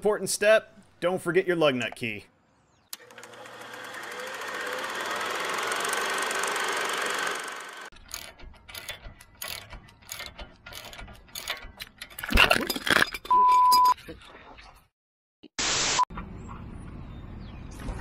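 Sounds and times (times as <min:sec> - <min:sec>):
ratchet wrench clicking: 0:04.9 - 0:12.0.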